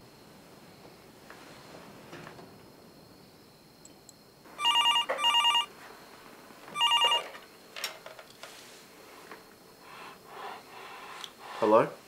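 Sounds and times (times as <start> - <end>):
telephone ringing: 4.6 - 5.7, 6.8 - 7.4.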